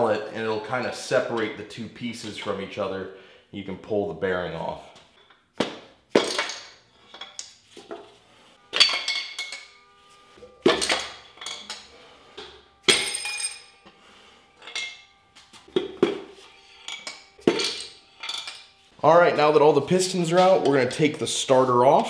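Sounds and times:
metallic clanks and clinks: 0:08.7 - 0:09.8, 0:10.6 - 0:11.9, 0:12.9 - 0:13.8, 0:14.6 - 0:15.1, 0:16.8 - 0:18.7.

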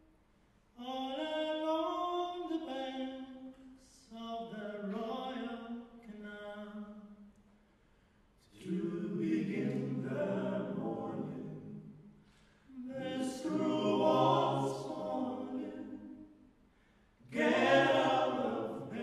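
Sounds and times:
men singing in harmony: 0:08.6 - 0:11.7, 0:12.9 - 0:16.1, 0:17.3 - 0:19.0.

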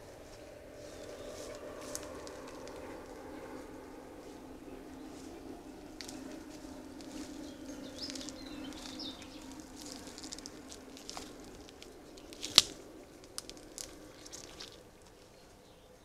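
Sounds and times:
low steady hum: 0:00.0 - 0:16.0
rustling grass and leaves: 0:00.0 - 0:16.0
twigs snapping: 0:01.2 - 0:03.3, 0:05.9 - 0:15.3.

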